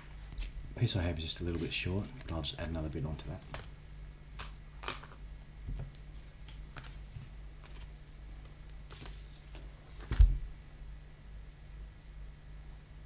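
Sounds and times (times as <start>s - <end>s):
paper rustling: 6.2s - 10.5s.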